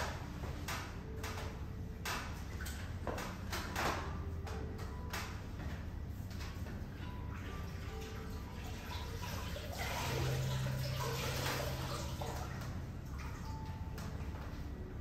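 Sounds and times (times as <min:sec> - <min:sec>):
water running: 0:06.2 - 0:15.0.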